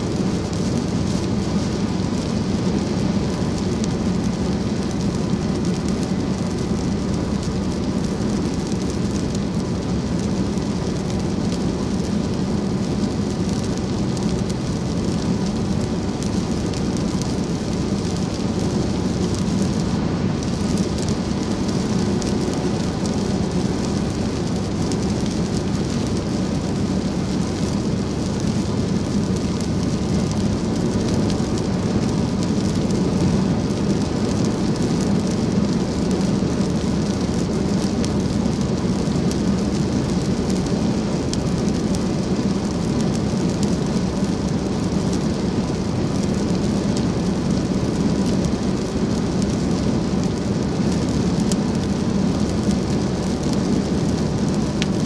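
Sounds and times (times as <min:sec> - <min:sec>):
rain on car windshield and roof: 0:00.0 - 0:55.0
tyres hissing on wet road: 0:00.0 - 0:55.0.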